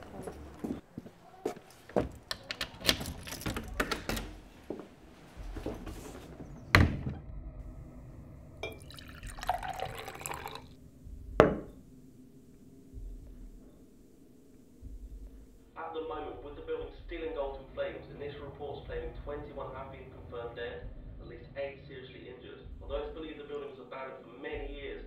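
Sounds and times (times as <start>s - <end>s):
drink poured into glass: 8.6s - 10.8s.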